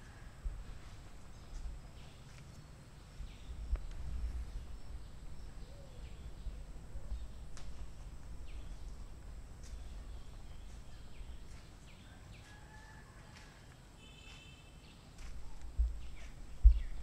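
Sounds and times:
birds chirping: 1.3 - 13.0, 14.0 - 17.0
steady low rumble: 3.1 - 11.7, 15.4 - 17.0.

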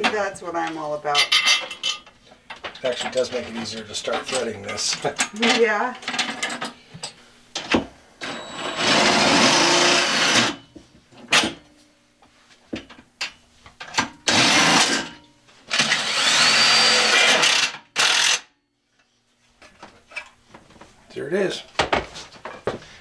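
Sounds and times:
cordless impact driver running: 8.2 - 10.6, 14.3 - 15.0, 15.7 - 18.5.

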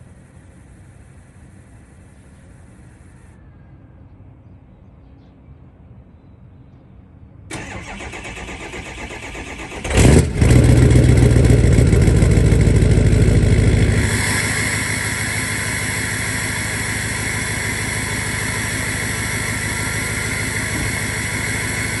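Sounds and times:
starter motor cranking: 7.5 - 13.1, 13.7 - 22.0
diesel engine starting and idling: 7.5 - 22.0.

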